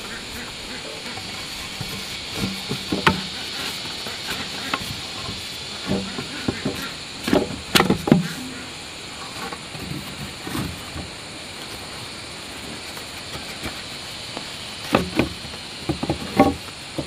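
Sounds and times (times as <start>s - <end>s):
steady high hiss: 0.0s - 17.0s
wooden knocks and thuds: 1.1s - 8.6s, 14.8s - 17.0s.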